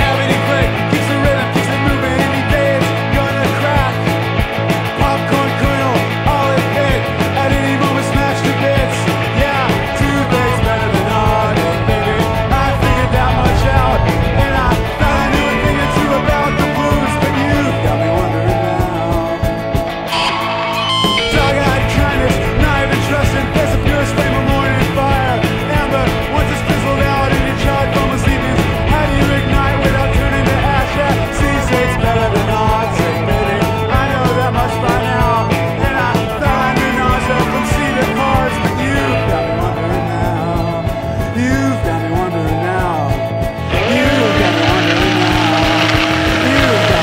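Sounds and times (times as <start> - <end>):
rock music with drum beat: 0.0 - 47.0.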